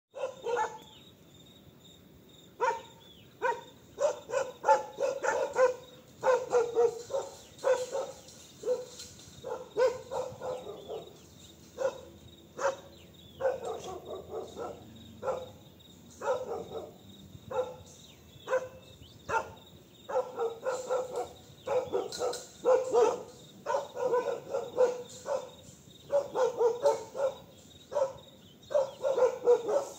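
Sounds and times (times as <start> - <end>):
dogs barking: 0.1 - 0.9, 2.6 - 29.9.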